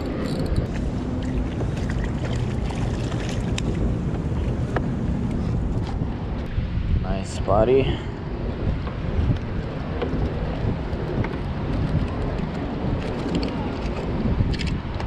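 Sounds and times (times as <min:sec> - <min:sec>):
wind rumbling on microphone: 0:00.0 - 0:15.0
water lapping at boat hull: 0:00.7 - 0:06.0.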